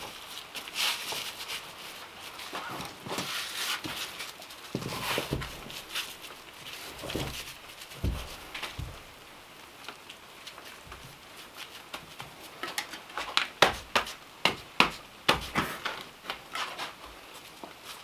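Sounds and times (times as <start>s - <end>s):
stones knocking and scraping: 4.7s - 9.2s.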